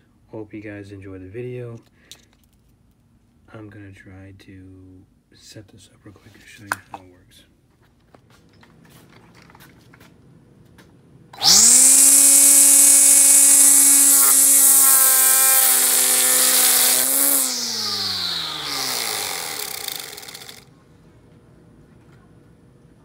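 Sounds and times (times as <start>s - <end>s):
string trimmer motor whining: 11.4s - 20.7s.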